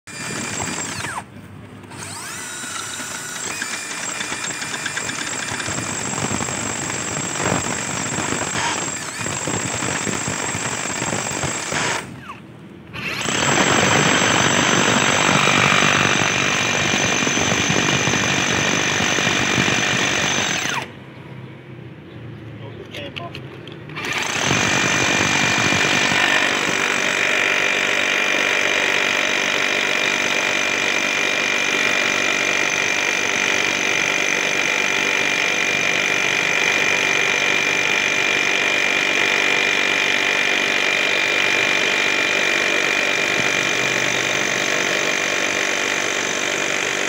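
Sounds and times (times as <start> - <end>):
rotary hammer drilling into stone: 0.1 - 1.3, 1.9 - 12.4, 13.0 - 20.9, 24.0 - 47.0.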